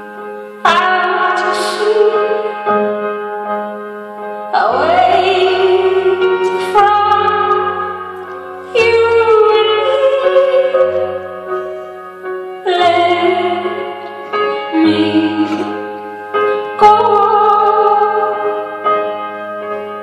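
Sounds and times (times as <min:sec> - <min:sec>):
keyboard chords: 0:00.0 - 0:20.0
woman singing a slow ballad: 0:00.6 - 0:02.7, 0:04.5 - 0:11.2, 0:12.6 - 0:14.1, 0:14.7 - 0:16.0, 0:16.7 - 0:18.8.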